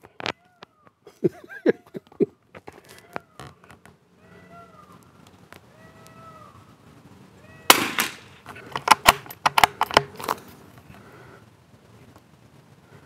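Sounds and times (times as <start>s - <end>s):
animal calls: 2.8s - 6.7s
rifle shot: 7.7s - 10.1s
rifle bolt clicks: 7.7s - 10.4s.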